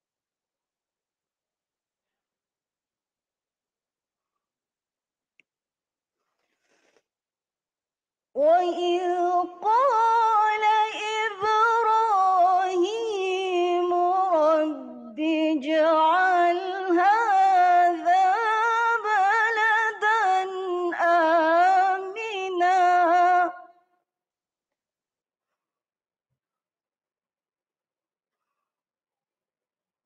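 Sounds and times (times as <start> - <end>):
woman chanting melodically: 8.4 - 23.8.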